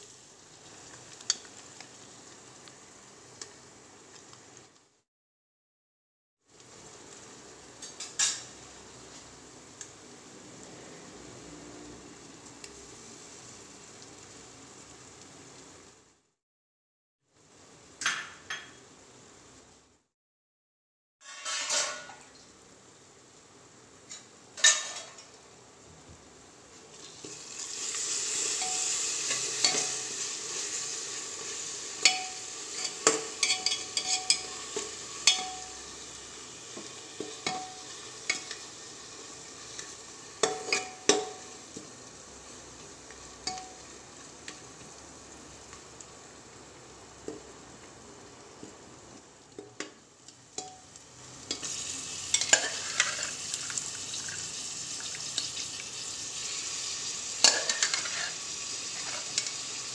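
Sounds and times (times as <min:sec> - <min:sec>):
paste sizzling in oil: 0:00.0 - 0:04.7, 0:06.5 - 0:16.0, 0:26.8 - 0:59.9
spoon clanking against pot: 0:28.6 - 0:30.0, 0:32.0 - 0:35.7, 0:37.2 - 0:38.6, 0:40.4 - 0:41.4, 0:50.6 - 0:50.8.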